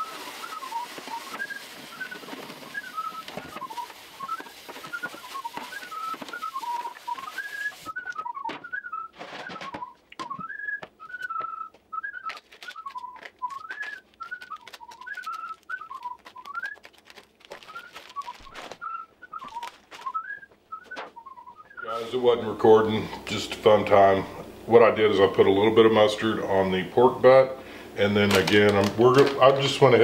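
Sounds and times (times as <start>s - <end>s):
man whistling a tune: 0.0s - 16.9s, 17.5s - 22.1s
plastic wrap crackling: 0.0s - 22.2s, 28.0s - 30.0s.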